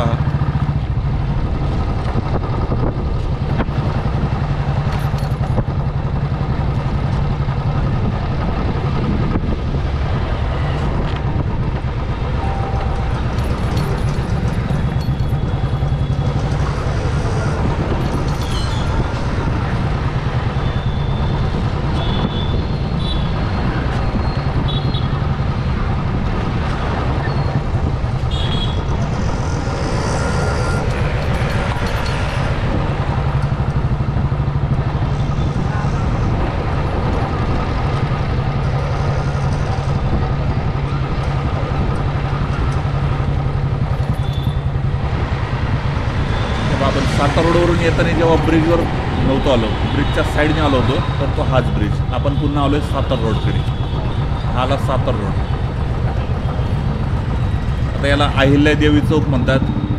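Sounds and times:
motorbike engine running: 0.0 - 59.9
other vehicles passing: 0.0 - 59.9
road noise: 0.0 - 59.9
short high beeps: 12.4 - 13.1.

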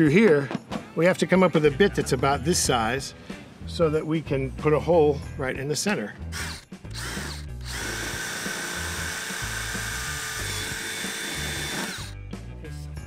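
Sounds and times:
background music: 0.0 - 13.0
router whining: 6.3 - 12.2.

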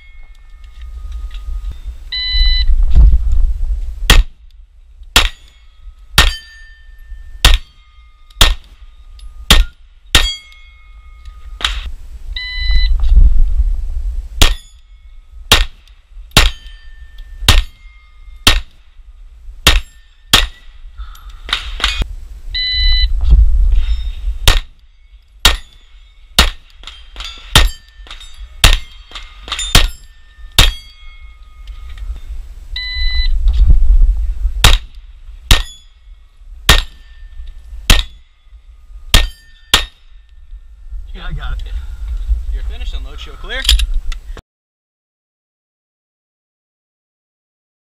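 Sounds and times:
shot-timer beep: 2.1 - 2.7, 12.4 - 12.9, 22.6 - 23.1, 32.8 - 33.3
pistol shots: 5.2 - 5.5, 7.4 - 7.7, 8.4 - 8.7, 15.5 - 16.7, 17.5 - 17.8, 18.4 - 18.8, 24.4 - 24.8, 26.4 - 30.0, 34.6 - 35.8, 36.7 - 37.0, 37.9 - 38.2, 39.1 - 40.0
steel plate clanging: 5.2 - 11.9, 14.4 - 15.8, 16.4 - 18.8, 19.6 - 20.8, 23.8 - 32.0, 34.7 - 36.1, 36.7 - 40.2.

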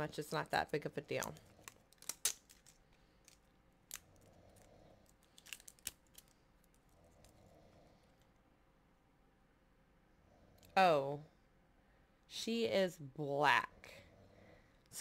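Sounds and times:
small plastic clicks: 1.2 - 7.2.

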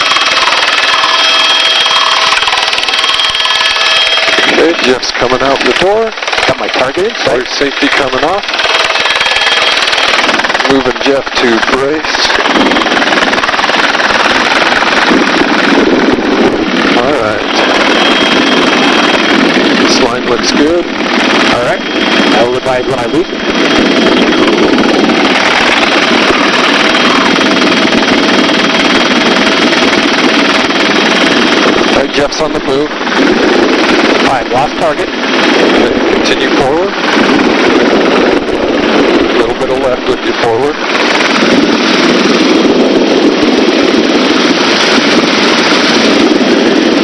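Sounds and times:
helicopter rotor and engine: 0.0 - 47.0
wind on microphone: 0.0 - 47.0.

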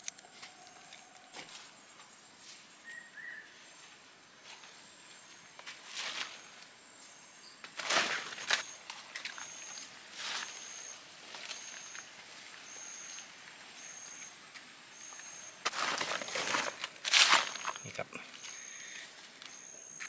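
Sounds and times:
footsteps rustling dry leaves: 5.6 - 6.6, 7.7 - 19.5.

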